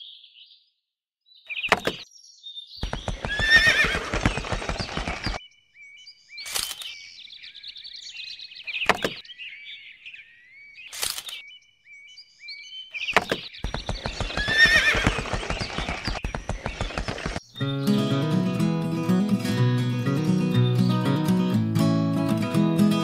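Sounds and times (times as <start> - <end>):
horse neighing: 3.2 - 4.5, 14.2 - 16.0.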